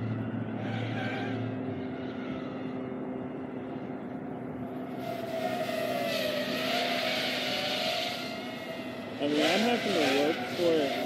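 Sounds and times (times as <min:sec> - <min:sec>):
louder wavering whine: 0:00.0 - 0:11.0
quadcopter motors whining: 0:04.8 - 0:11.0.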